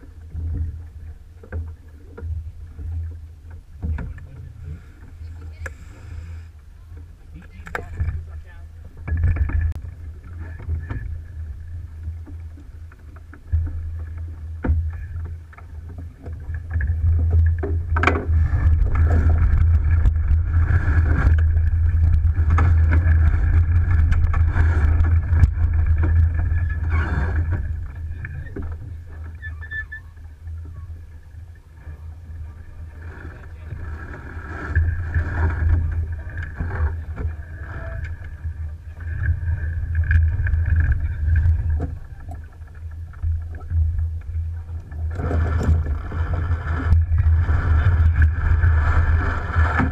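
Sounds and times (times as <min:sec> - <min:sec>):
water rushing past boat hull: 0:00.0 - 0:49.9
wind rumbling on microphone: 0:00.0 - 0:49.9.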